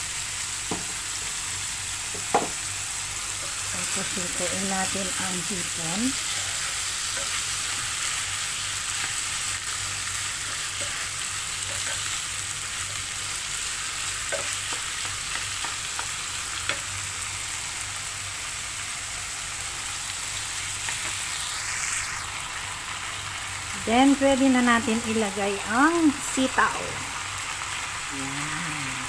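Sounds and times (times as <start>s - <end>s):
food sizzling in a pan: 0.0s - 29.0s
spatula scraping and tapping pan: 10.5s - 12.1s.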